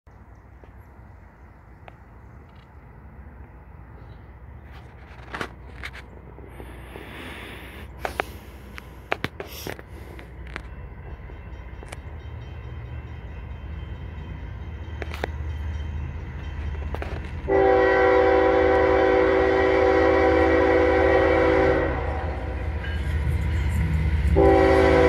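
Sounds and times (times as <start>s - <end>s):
diesel locomotive rumble: 0.1s - 25.0s
train air horn blast: 17.5s - 22.6s, 24.3s - 25.0s.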